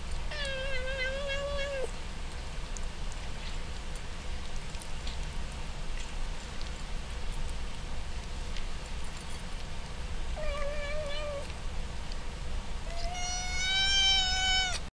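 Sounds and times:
kitten crunching kibble: 0.0s - 14.8s
kitten meowing: 0.3s - 1.9s, 10.4s - 11.5s, 12.9s - 14.9s.

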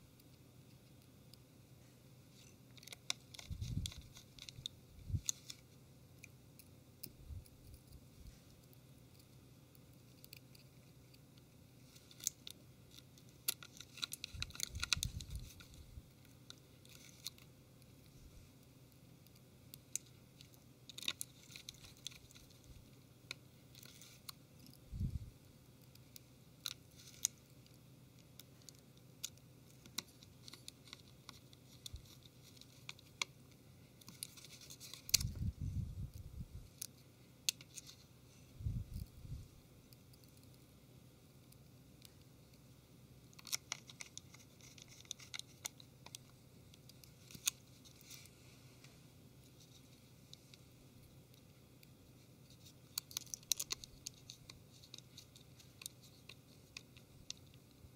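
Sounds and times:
screwdriver clicks and scratches: 43.3s - 46.2s.

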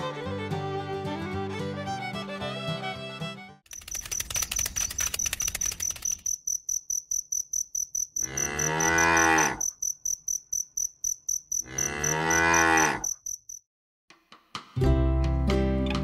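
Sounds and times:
crickets chirping: 3.7s - 13.6s
cattle mooing: 8.2s - 9.7s, 11.6s - 13.1s.

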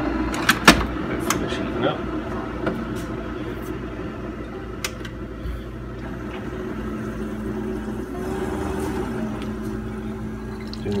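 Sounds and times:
coffee maker humming: 0.0s - 11.0s
low pump drone: 3.2s - 11.0s.

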